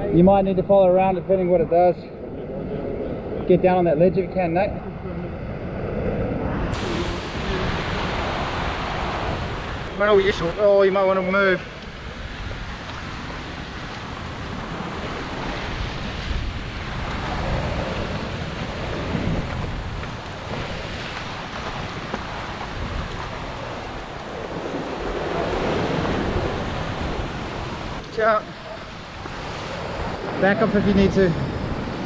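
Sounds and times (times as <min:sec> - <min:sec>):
wind buffeting microphone: 0:00.0 - 0:32.0
surf washing against rocks: 0:06.7 - 0:32.0.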